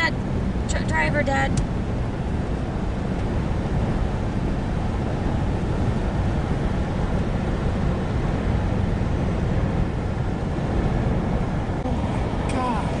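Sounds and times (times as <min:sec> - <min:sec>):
tyre and engine rumble: 0:00.0 - 0:13.0.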